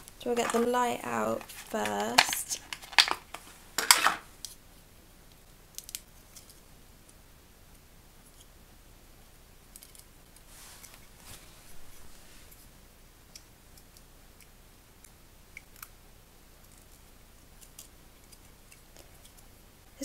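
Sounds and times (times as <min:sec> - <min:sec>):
plastic packaging crackling: 0:00.0 - 0:04.3.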